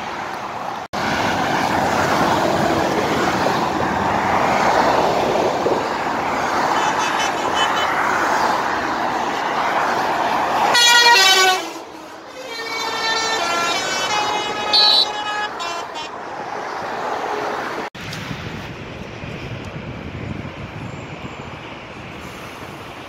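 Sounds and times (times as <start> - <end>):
motorway traffic noise: 0.0 - 23.0
truck air horn: 6.6 - 8.4, 10.6 - 16.4.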